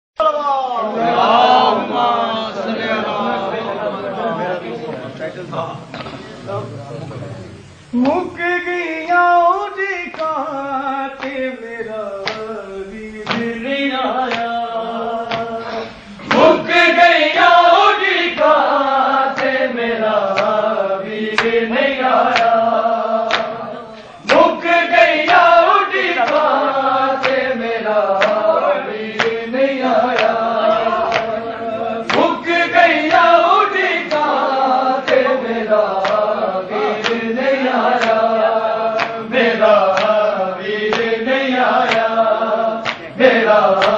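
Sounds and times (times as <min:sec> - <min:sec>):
men chanting devotional refrain: 0:00.2 - 0:43.9
hand slaps keeping a beat: 0:08.0 - 0:08.3, 0:10.0 - 0:10.6, 0:11.2 - 0:14.6, 0:15.2 - 0:43.9.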